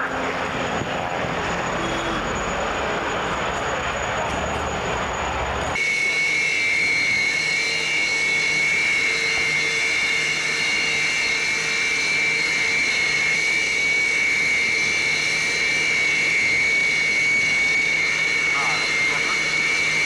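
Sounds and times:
jet engines idling: 0.0 - 20.0.

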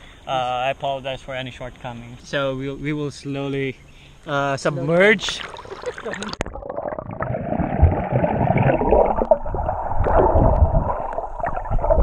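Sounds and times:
underwater bubbling and churning: 5.3 - 12.0.

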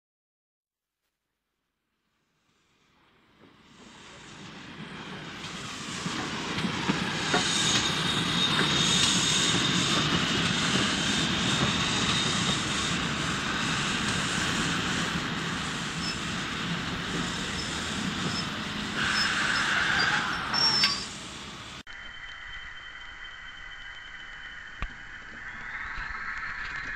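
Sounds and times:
train rumbling: 3.0 - 26.9
high-pitched squeal: 5.7 - 26.9.

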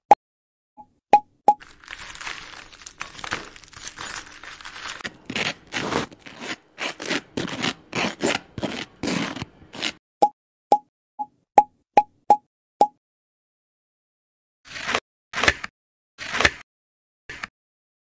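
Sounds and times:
hands squeezing crumbly mixture: 1.6 - 9.3.

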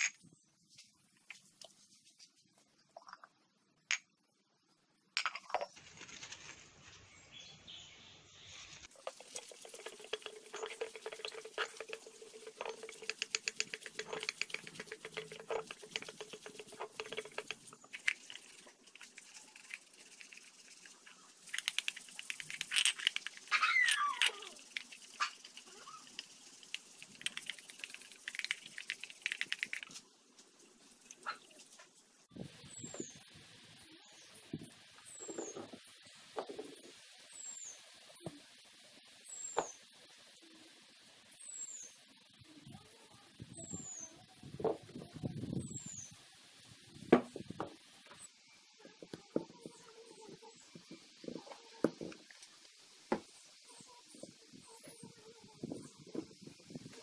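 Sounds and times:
brush scrubbing wet metal: 8.4 - 30.0
squeaks from rubbing: 22.5 - 26.1.

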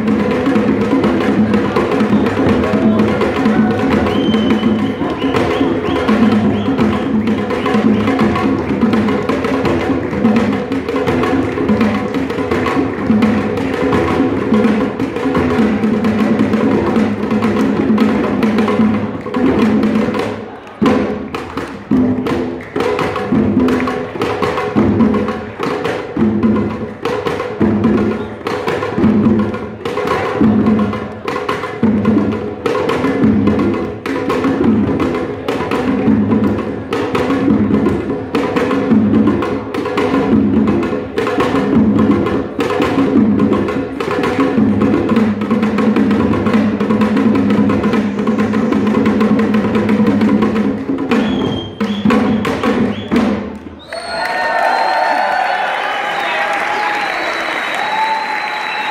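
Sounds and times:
drum ensemble playing: 0.0 - 58.9.

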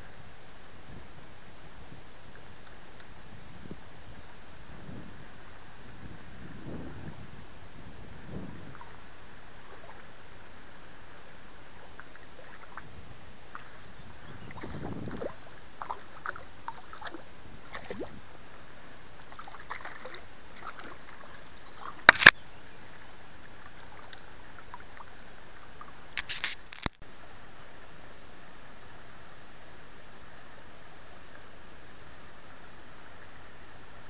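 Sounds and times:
shallow river rushing: 0.1 - 26.4
fish splashing at the surface: 19.3 - 22.3.

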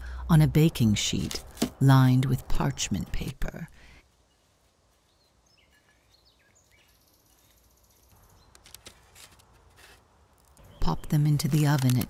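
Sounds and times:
faint bird chirps: 4.2 - 8.6.

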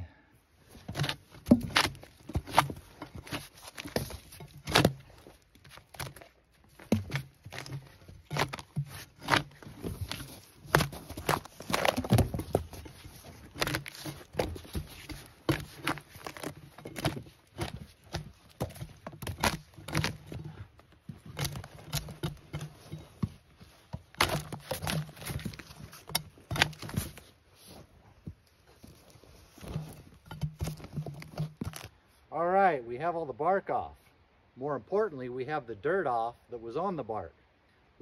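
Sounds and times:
bark chunks tearing and falling: 0.9 - 23.4, 24.0 - 27.2.

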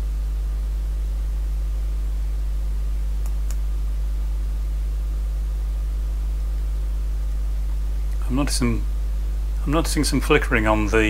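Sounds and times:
electrical mains hum: 0.0 - 11.0
faint clicks: 3.2 - 3.6.

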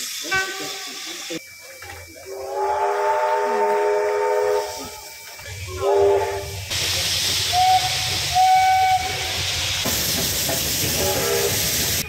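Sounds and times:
steam locomotive whistle: 0.0 - 1.4, 2.3 - 6.7, 7.4 - 9.6, 10.9 - 12.0
steam hissing: 0.0 - 12.0.

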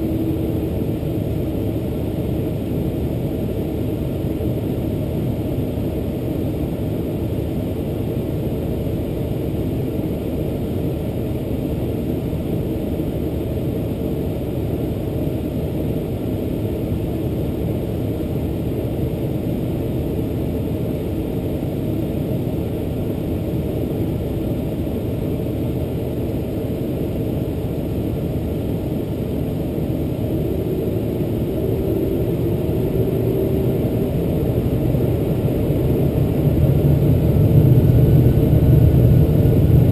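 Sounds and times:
held hum: 0.0 - 6.4, 19.1 - 39.9
jet engines rumbling in cabin: 0.0 - 39.9.

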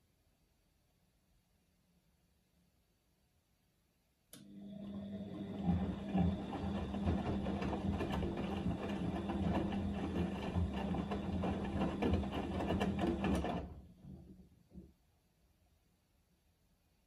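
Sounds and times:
washing machine motor hum: 4.4 - 14.8.

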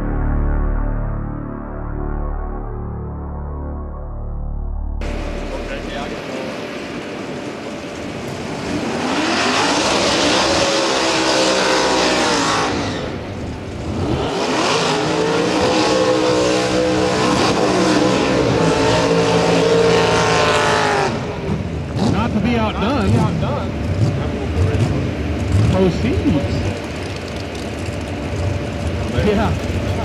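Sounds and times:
high-revving engines: 5.0 - 30.0
tyres spinning on pavement: 26.2 - 30.0.

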